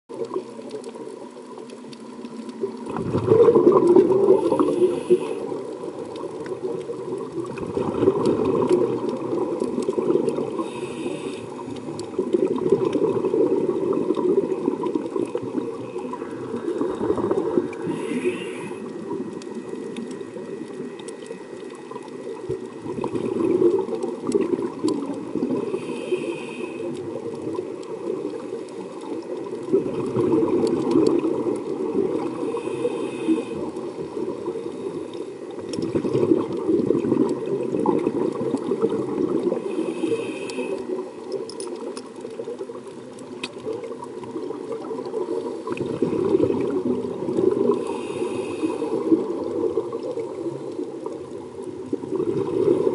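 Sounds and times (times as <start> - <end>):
exhalation bubbles rushing: 2.7 - 4.9, 5.5 - 10.6, 11.9 - 18.0, 21.9 - 25.8, 29.4 - 32.4, 35.6 - 39.7, 43.6 - 48.0, 51.6 - 52.9
regulator inhalation hiss: 4.3 - 5.6, 10.6 - 11.7, 17.8 - 19.1, 25.6 - 27.0, 32.4 - 33.7, 39.6 - 41.0, 47.8 - 49.2.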